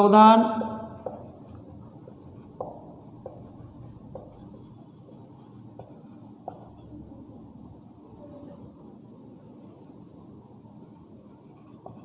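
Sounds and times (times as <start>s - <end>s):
marker tip tapping board: 0.6s - 1.6s, 2.4s - 4.8s
marker pen writing on whiteboard: 0.6s - 7.5s, 8.1s - 12.0s.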